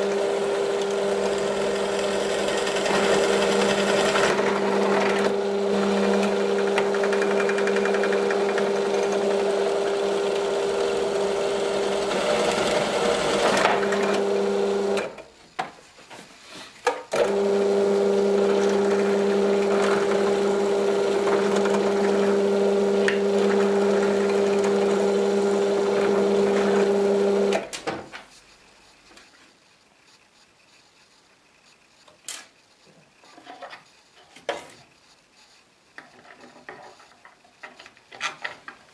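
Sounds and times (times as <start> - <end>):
drill press motor humming: 0.0 - 15.1, 17.1 - 27.6.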